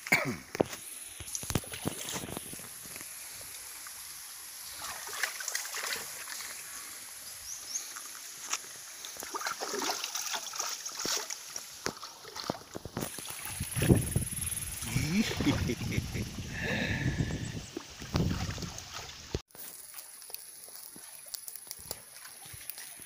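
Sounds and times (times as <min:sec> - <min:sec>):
stream running: 0:00.0 - 0:23.0
hands splashing water: 0:08.5 - 0:14.0.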